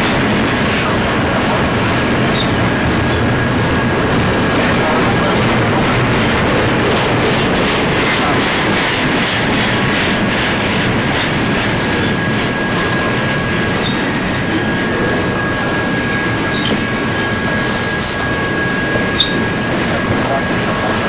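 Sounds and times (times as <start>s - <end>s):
train wheels clicking on rails: 0.0s - 21.0s
high wheel squeal: 2.2s - 3.4s, 11.1s - 20.9s.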